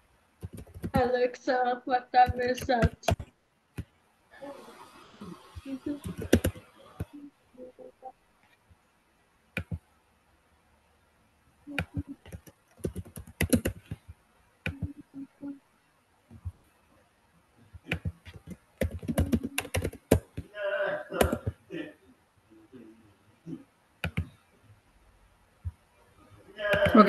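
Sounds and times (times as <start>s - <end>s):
computer keyboard typing: 0.4s - 1.1s, 2.2s - 3.2s, 5.9s - 7.2s, 9.6s - 9.8s, 11.8s - 14.0s, 14.7s - 15.0s, 17.9s - 20.4s, 21.2s - 21.6s, 24.0s - 24.3s, 26.7s - 27.0s.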